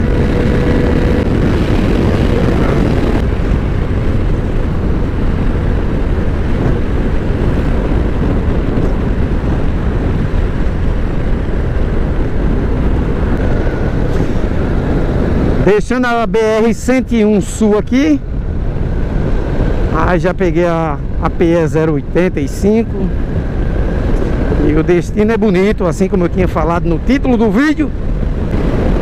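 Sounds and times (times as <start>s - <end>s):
motorcycle running noise: 0.0s - 29.0s
wind rushing over microphone: 0.0s - 29.0s.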